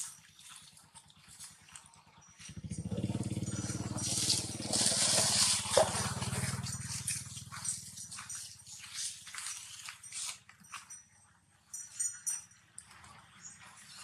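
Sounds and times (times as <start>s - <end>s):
vehicle engine passing: 2.4s - 8.6s.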